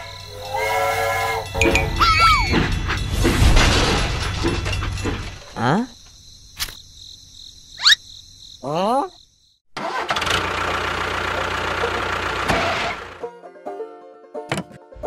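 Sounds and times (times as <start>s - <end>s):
engine-like rumble: 10.3s - 13.2s.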